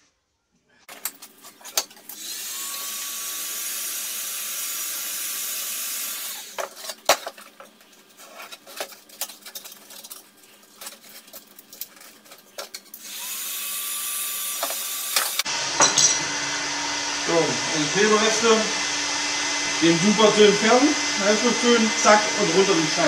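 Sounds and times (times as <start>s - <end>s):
heat gun rushing hiss: 2.1s - 6.7s, 13.0s - 15.5s, 16.2s - 23.0s
clicks and scrapes on metal: 6.6s - 13.0s.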